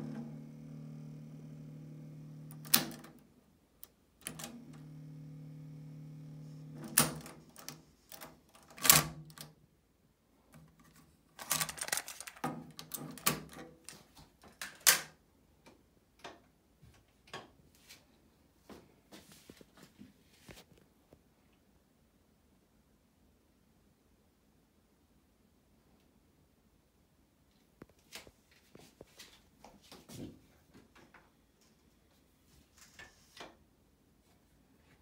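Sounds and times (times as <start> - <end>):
cassette deck transport hum: 0.0 - 7.5
cassette handling clicks and rattles: 2.4 - 3.2, 6.7 - 9.6, 10.6 - 15.1.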